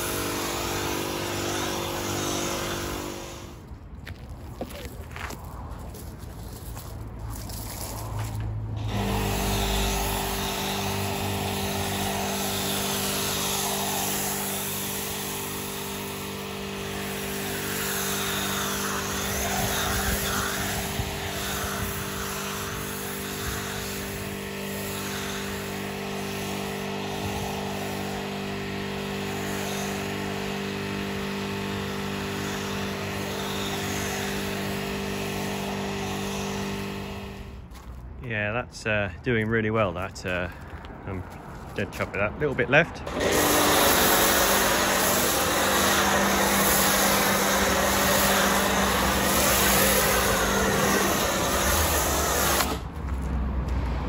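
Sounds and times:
electric pressure washer running: 0.0 - 3.7, 8.8 - 37.6, 43.1 - 52.9
foam lance spraying hiss: 8.8 - 15.7, 43.3 - 52.8.

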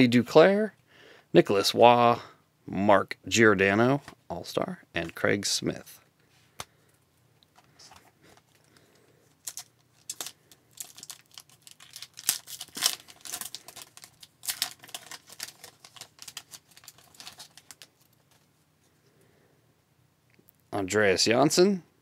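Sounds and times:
foil wrapper crinkling: 8.4 - 18.4.

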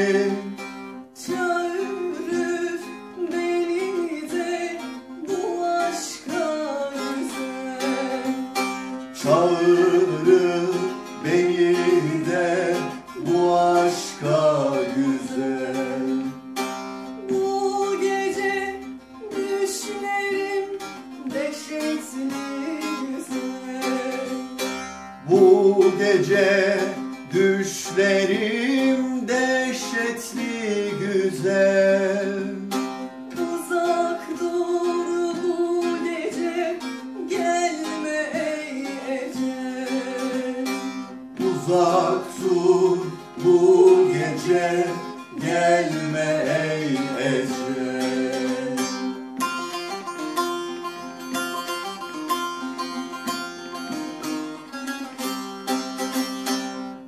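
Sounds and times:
saz strummed with a plectrum: 0.0 - 57.0.

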